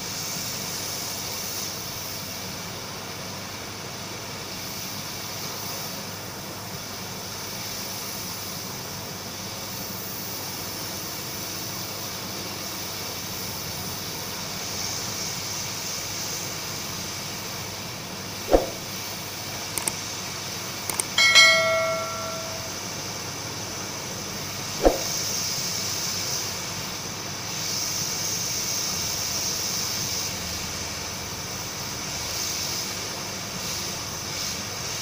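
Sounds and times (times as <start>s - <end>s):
clicks: 20.9s - 22.8s
ringing bell chime: 20.9s - 22.8s.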